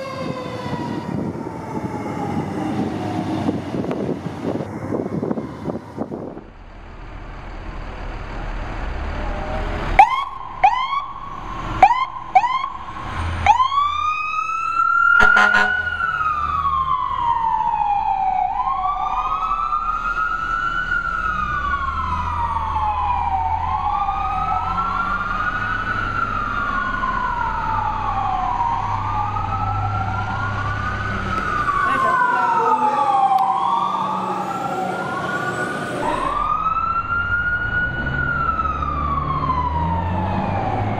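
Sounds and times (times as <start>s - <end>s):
fire truck siren wailing: 0.0s - 40.9s
truck engine rumble: 0.0s - 40.9s
siren chirps: 9.2s - 40.9s.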